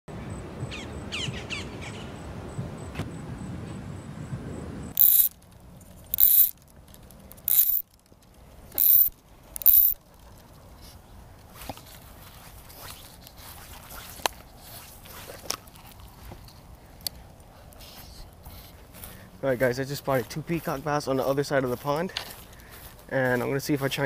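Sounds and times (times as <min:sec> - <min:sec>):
fly reel ratcheting buzz: 0:05.0 - 0:05.4, 0:06.1 - 0:06.6, 0:07.5 - 0:07.8, 0:08.8 - 0:10.0.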